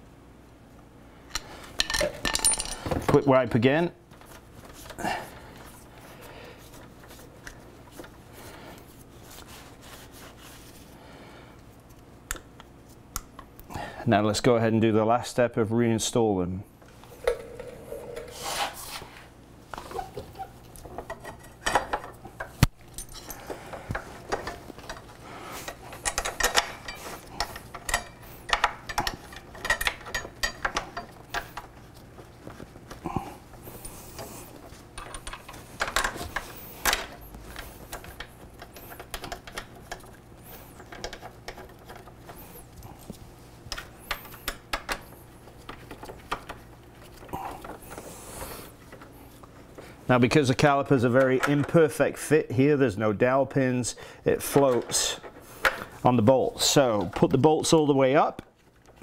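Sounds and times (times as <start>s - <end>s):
bolts being turned by hand: 1.3s - 5.9s, 19.7s - 52.0s.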